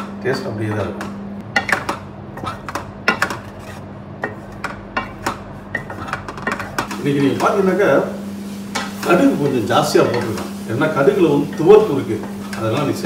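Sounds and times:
wooden spatula scraping a pan: 3.3s - 4.6s, 5.7s - 13.0s.

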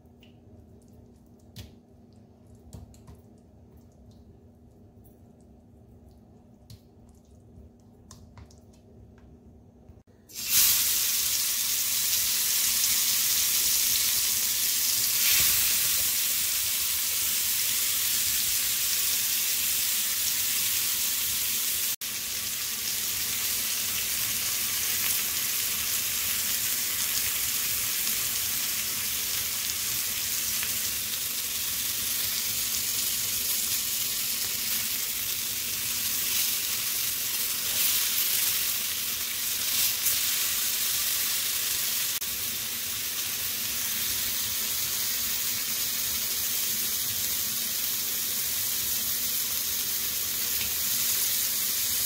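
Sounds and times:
chicken sizzling in hot oil: 10.2s - 52.0s.

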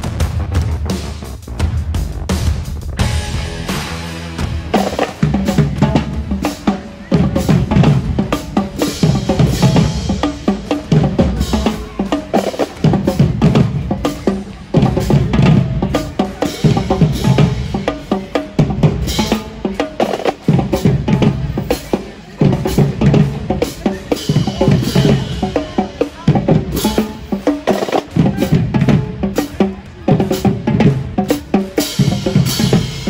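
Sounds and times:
bass drums: 0.0s - 33.0s
snare drums: 0.0s - 33.0s.

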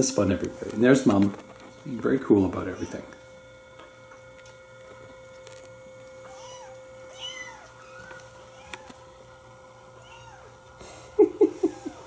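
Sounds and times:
faint steady hum: 0.0s - 12.0s
kittens mewing: 2.2s - 3.2s, 6.2s - 9.3s, 9.9s - 10.8s, 11.4s - 12.0s.

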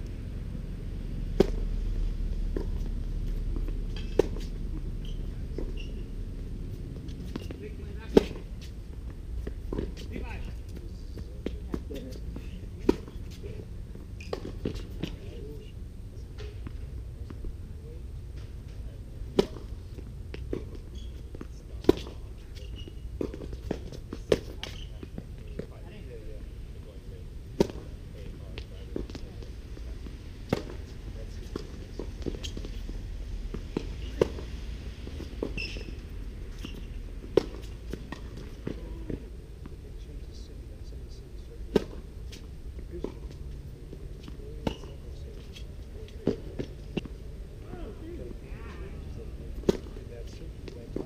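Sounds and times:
racket hitting tennis ball: 1.3s - 1.7s, 2.5s - 6.5s, 7.1s - 8.8s, 11.4s - 13.4s, 19.3s - 25.7s, 27.5s - 28.0s, 30.4s - 32.9s, 33.5s - 39.2s, 41.6s - 43.4s, 44.2s - 47.2s, 49.5s - 50.0s.

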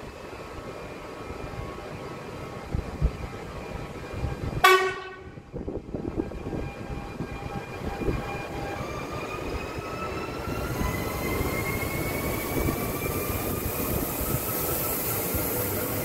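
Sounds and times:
train rolling with low rumble: 0.0s - 16.0s
train horn toot: 4.6s - 5.4s.

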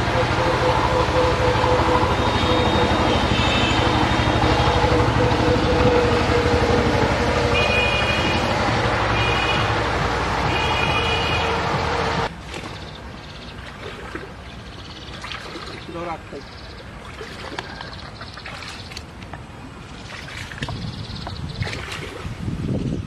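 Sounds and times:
vehicle engine drone: 0.0s - 15.2s.

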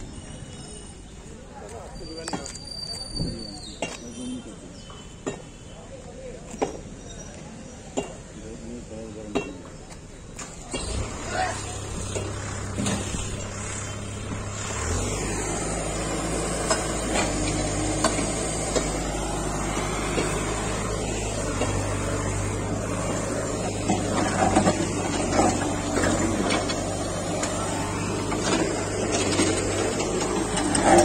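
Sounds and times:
heavy machine engine running: 10.4s - 31.0s.

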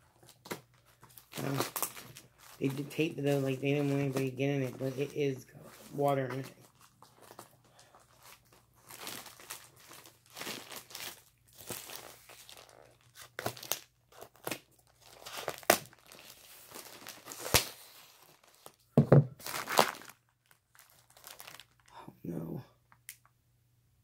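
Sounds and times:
packing tape and plastic tearing: 0.3s - 5.0s, 8.1s - 18.8s, 19.4s - 21.9s.

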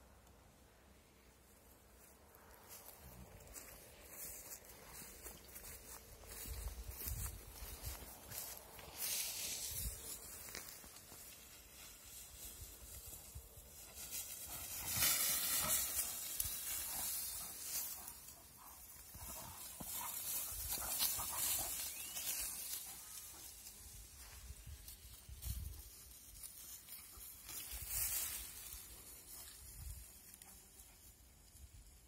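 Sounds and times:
dogs scuffling in dry grass: 2.0s - 32.0s.

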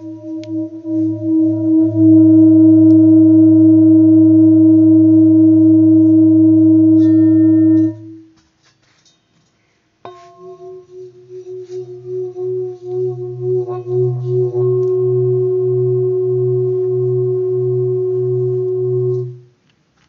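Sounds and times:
higher singing bowl struck: 0.0s - 8.2s, 10.1s - 19.4s
singing bowl ringing: 0.0s - 8.3s, 10.1s - 19.5s.

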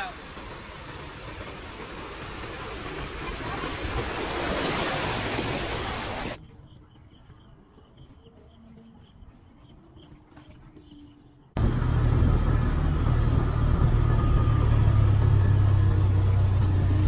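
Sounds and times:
floodwater rushing and splashing: 0.0s - 6.4s.

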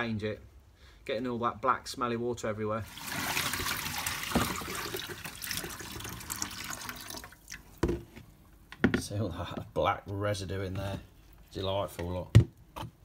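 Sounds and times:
water splashing into sink: 2.8s - 8.0s.

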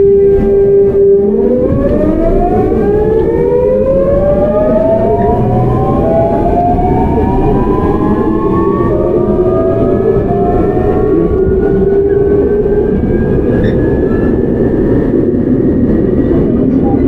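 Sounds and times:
low rumble of train car: 0.0s - 17.0s
train inverter whining: 0.0s - 17.0s.

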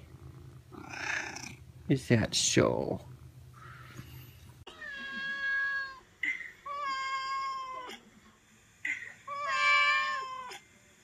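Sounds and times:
cat meowing: 4.7s - 6.0s, 6.6s - 8.0s, 8.9s - 10.6s.

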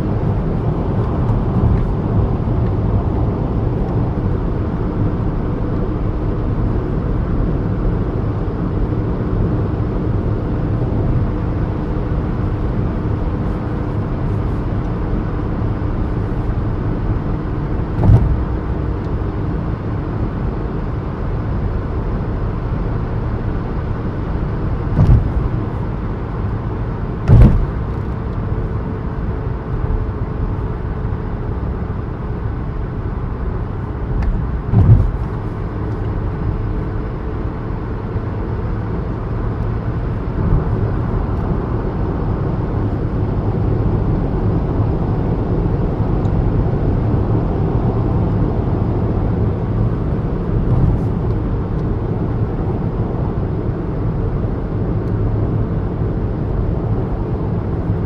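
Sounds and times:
car engine and road noise: 0.0s - 58.0s
sharp thumps: 24.9s - 25.6s, 27.2s - 27.9s.

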